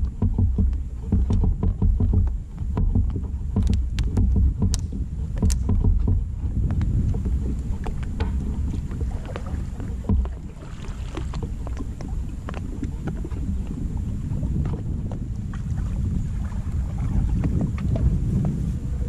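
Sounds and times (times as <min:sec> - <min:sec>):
wind rumbling on microphone: 0:00.0 - 0:19.0
clicks and knocks of branch: 0:03.6 - 0:05.8.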